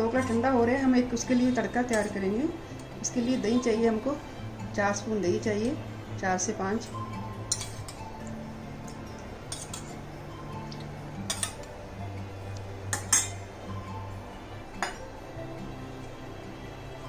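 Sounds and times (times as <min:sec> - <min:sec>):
soft background music: 0:00.0 - 0:17.0
spoon clinking against bowl: 0:01.8 - 0:02.2, 0:07.5 - 0:08.3, 0:08.9 - 0:10.0, 0:10.7 - 0:11.8, 0:12.9 - 0:13.5, 0:14.8 - 0:15.1.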